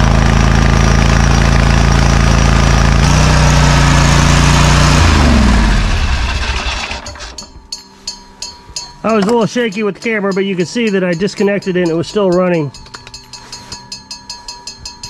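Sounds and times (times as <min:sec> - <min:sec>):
riding mower engine running: 0:00.0 - 0:07.5.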